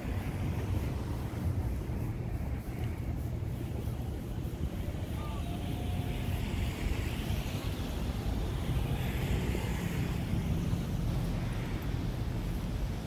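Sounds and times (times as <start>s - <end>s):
road traffic rumble: 0.0s - 13.0s
tyre noise of passing vehicle: 0.0s - 13.0s.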